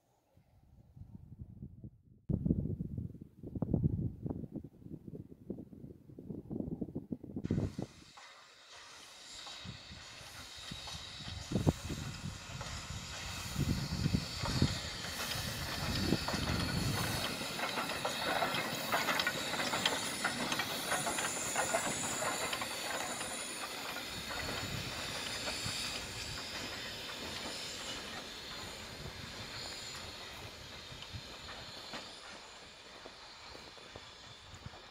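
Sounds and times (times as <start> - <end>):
steam hissing: 7.4 - 34.9
wheels clicking and clanking: 8.2 - 34.9.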